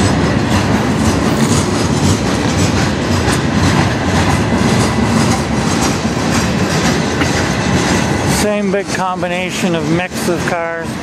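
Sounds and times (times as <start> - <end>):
train wheels rumbling: 0.0 - 11.0
wheels clacking on rails: 0.0 - 11.0.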